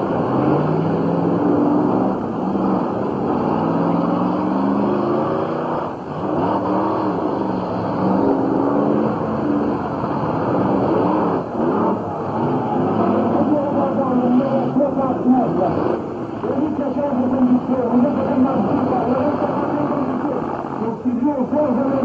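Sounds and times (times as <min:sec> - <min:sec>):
car engines revving hard: 0:00.0 - 0:22.0
rough engine rumble: 0:00.0 - 0:22.0.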